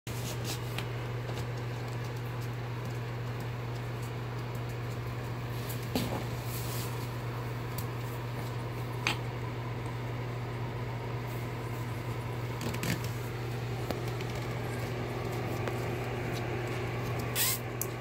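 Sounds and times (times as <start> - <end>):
puppies scuffling on floor: 0.1 - 7.3, 13.0 - 18.0
steady low hum: 0.1 - 18.0.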